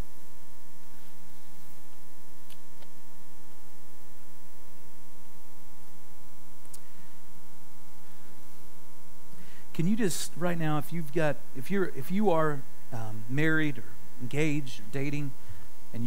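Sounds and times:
electrical mains hum: 0.0 - 16.0
person speaking: 9.7 - 16.0.

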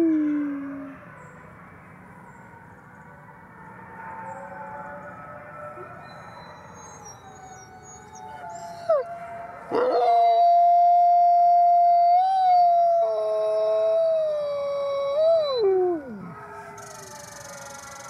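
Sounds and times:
fainter wolf howls: 4.2 - 18.0
wolf howling close up: 5.7 - 18.0.

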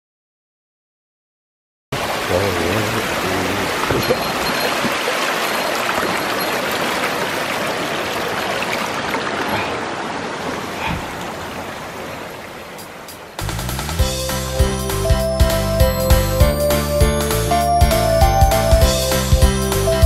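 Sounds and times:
stream rushing over rocks: 2.0 - 13.5.

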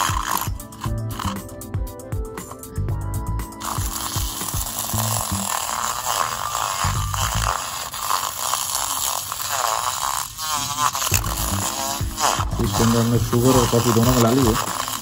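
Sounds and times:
milk frother whirring: 0.0 - 1.8, 2.5 - 15.0.

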